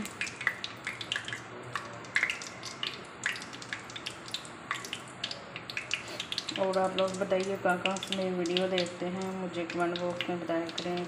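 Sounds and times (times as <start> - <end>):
seeds sizzling in hot oil: 5.6 - 11.0.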